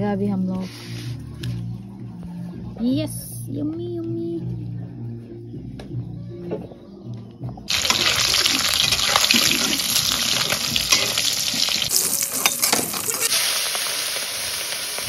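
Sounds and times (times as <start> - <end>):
fish sizzling in hot oil: 7.7 - 15.0
metal spatula scraping: 8.7 - 13.4.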